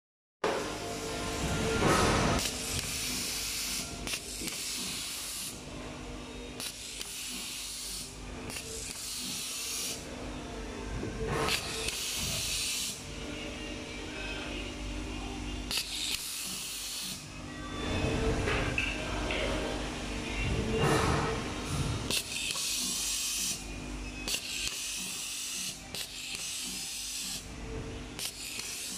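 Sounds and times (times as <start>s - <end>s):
low machine hum: 10.0s - 12.4s, 13.0s - 16.1s, 17.2s - 24.7s, 27.4s - 28.2s.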